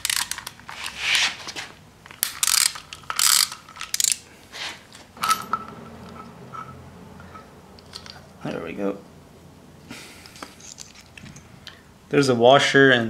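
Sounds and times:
ratchet wrench clicking: 0.0 - 0.6, 2.2 - 4.2.

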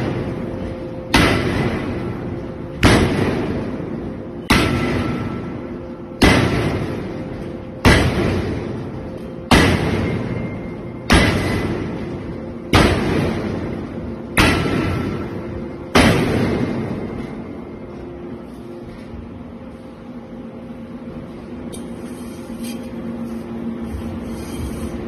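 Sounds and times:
forging hammer striking hot steel: 0.0 - 17.4.

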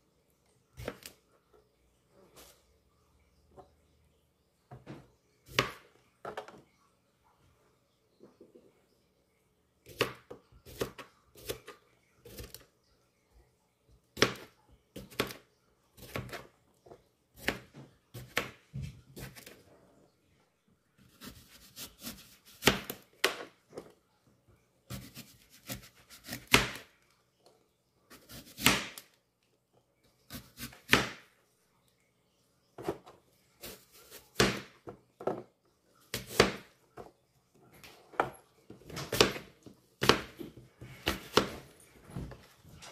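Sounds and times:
knife cutting on cutting board: 21.0 - 23.0, 24.9 - 26.8.

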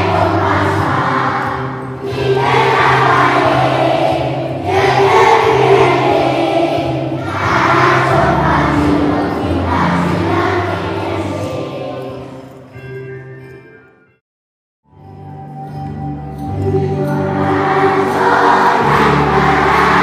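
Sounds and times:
acoustic guitars: 0.0 - 11.8
children singing together: 0.0 - 12.4, 16.6 - 20.0.

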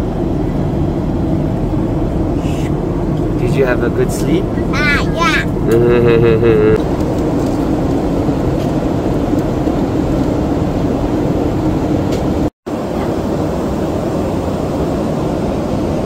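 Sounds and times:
jet airliner cabin drone: 0.0 - 16.0
low hum: 5.5 - 16.0.

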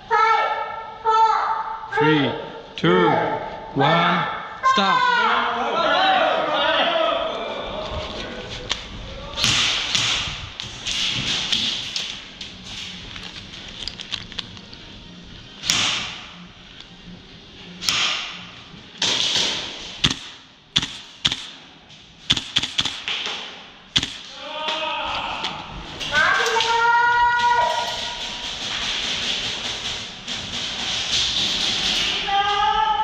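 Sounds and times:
airsoft guns snapping: 19.0 - 21.6, 22.3 - 24.3.

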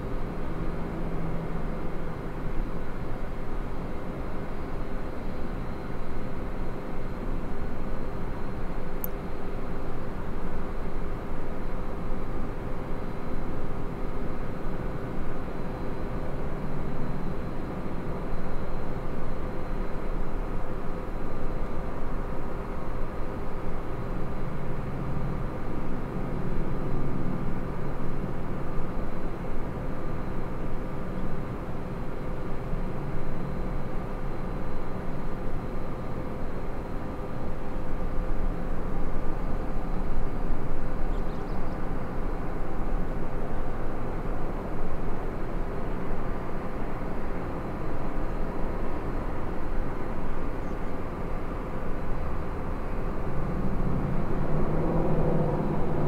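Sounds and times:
outdoor background rumble: 0.0 - 56.0.

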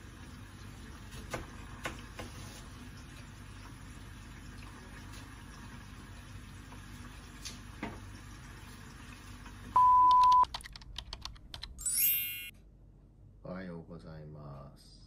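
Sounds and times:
loud steady beep: 9.8 - 10.4
bright high ringing chime: 11.8 - 12.5.

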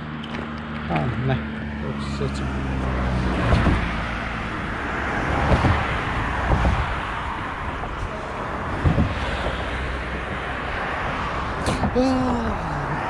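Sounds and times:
passing cars traffic noise: 0.0 - 13.0
low thumps: 3.4 - 4.1, 5.2 - 9.7.

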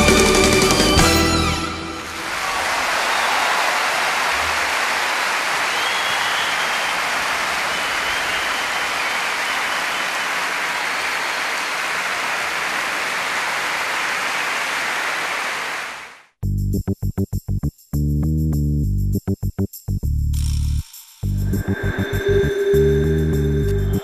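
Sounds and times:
crowd applauding: 0.0 - 16.3.

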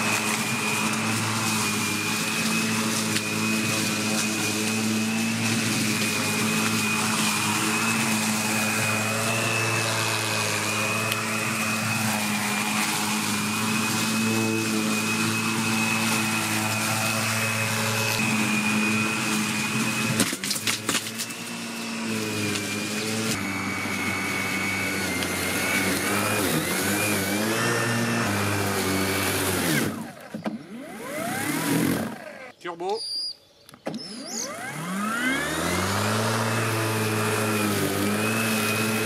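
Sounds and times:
lawn mower cutting grass: 0.0 - 32.6, 33.8 - 39.0.

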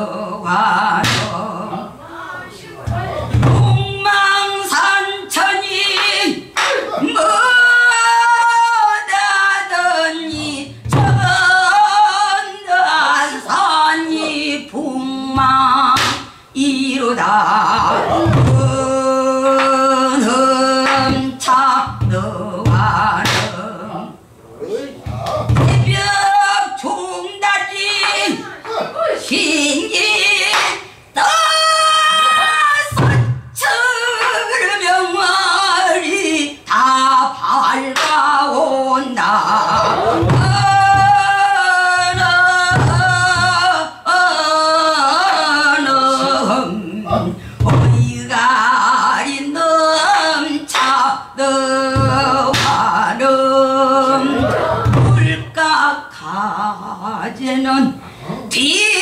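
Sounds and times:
woman singing with vibrato: 0.0 - 24.4, 25.0 - 59.0.

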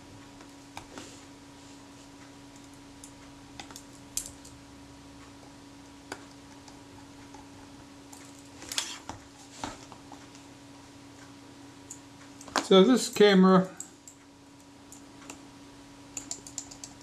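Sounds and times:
faint steady hum: 0.0 - 17.0
small metal clicks: 16.2 - 17.0.

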